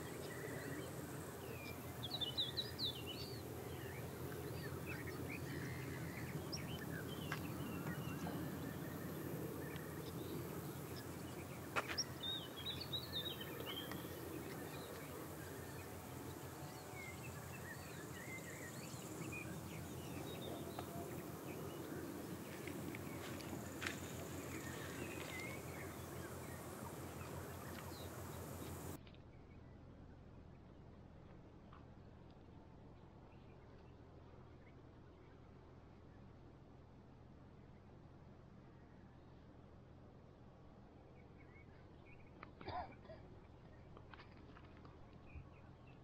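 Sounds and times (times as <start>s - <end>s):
small birds chirping: 0.0s - 29.0s
low steady rumble: 0.0s - 42.3s.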